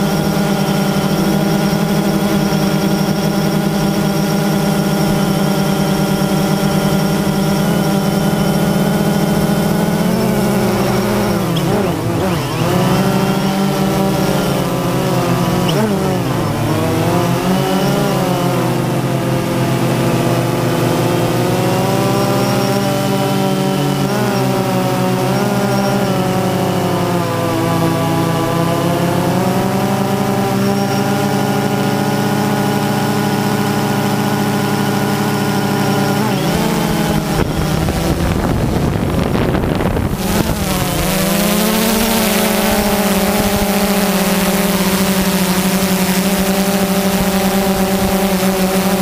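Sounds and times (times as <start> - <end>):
drone motors and propellers whining: 0.0 - 49.0
rough rush of noise: 33.9 - 49.0.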